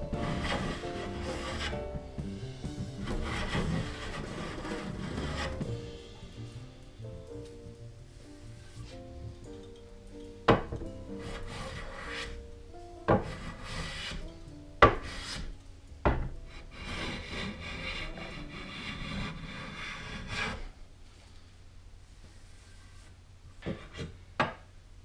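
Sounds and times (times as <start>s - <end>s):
hand plane scraping strokes: 0.1s - 1.8s, 3.0s - 5.7s, 11.2s - 12.4s, 13.1s - 14.3s, 14.9s - 15.5s, 16.5s - 20.7s.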